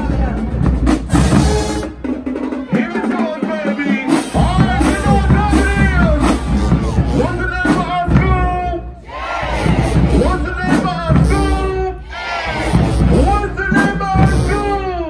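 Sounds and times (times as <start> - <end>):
bass drums: 0.0 - 15.0
crowd voices: 0.0 - 15.0
marching band playing: 0.0 - 15.0.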